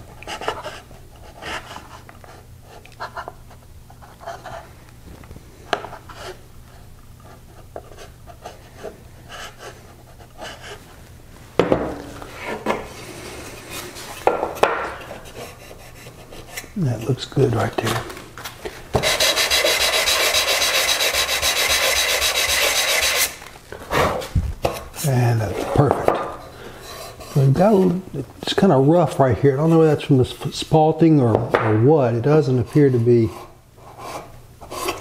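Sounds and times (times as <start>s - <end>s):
plane scraping wood: 19.0s - 24.8s, 26.8s - 28.0s.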